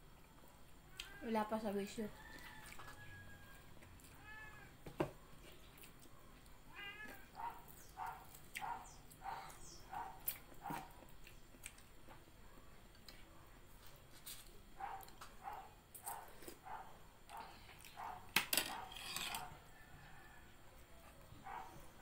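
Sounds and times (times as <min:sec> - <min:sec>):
cat meowing: 0:04.1 - 0:04.7, 0:06.7 - 0:07.4.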